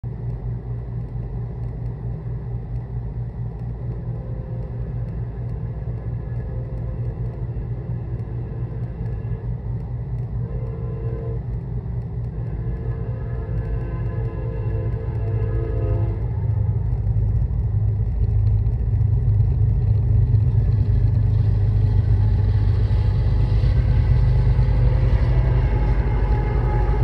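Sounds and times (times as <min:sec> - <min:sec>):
diesel locomotive rumble: 0:00.0 - 0:27.0.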